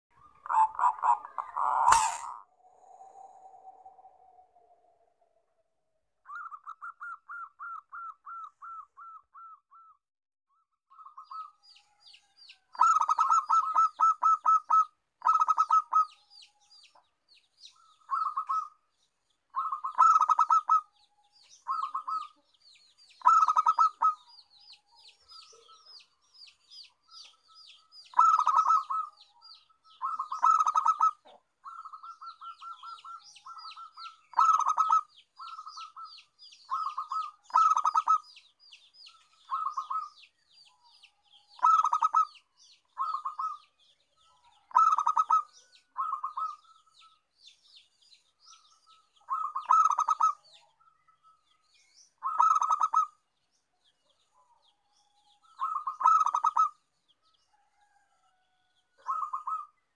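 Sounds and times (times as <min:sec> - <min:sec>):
dove cooing trills: 0:00.2 - 0:05.2, 0:06.3 - 0:09.9, 0:10.9 - 0:16.2, 0:17.7 - 0:18.8, 0:19.5 - 0:22.5, 0:23.2 - 0:26.1, 0:27.2 - 0:38.5, 0:39.1 - 0:47.2, 0:48.9 - 0:51.0, 0:52.2 - 0:53.2, 0:55.4 - 0:56.9, 0:59.0 - 0:59.8
high bird chirping: 0:00.2 - 0:05.3, 0:10.9 - 0:18.8, 0:19.5 - 0:53.3, 0:54.1 - 0:56.9, 0:59.0 - 0:59.8.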